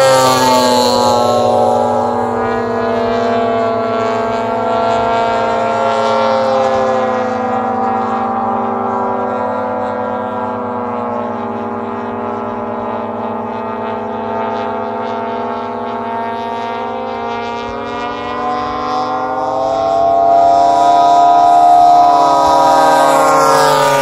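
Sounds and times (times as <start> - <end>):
model airplane engines droning: 0.0 - 24.0.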